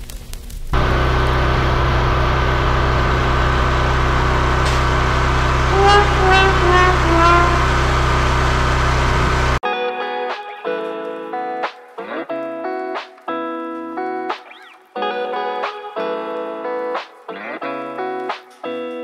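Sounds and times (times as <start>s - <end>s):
falling notes: 0.8s - 9.6s
pressure washer running: 0.8s - 9.6s.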